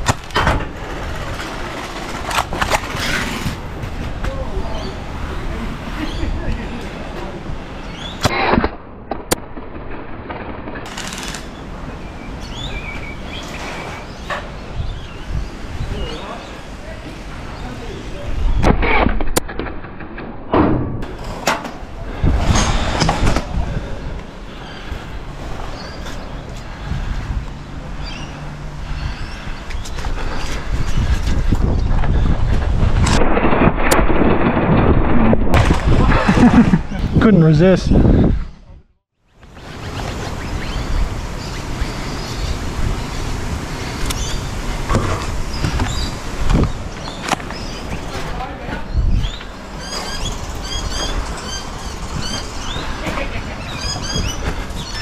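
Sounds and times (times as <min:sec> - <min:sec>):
wind buffeting microphone: 0:00.0 - 0:08.2, 0:10.8 - 0:19.4, 0:20.9 - 0:55.0
birds chirping: 0:04.3 - 0:08.3, 0:11.0 - 0:18.7, 0:23.6 - 0:32.3, 0:36.4 - 0:55.0.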